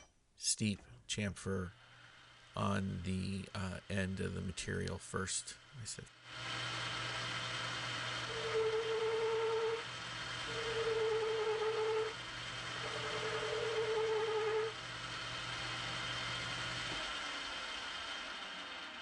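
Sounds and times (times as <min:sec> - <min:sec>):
lathe motor hum: 0:01.7 - 0:02.6, 0:06.2 - 0:19.0
lathe tool cutting metal: 0:06.3 - 0:19.0.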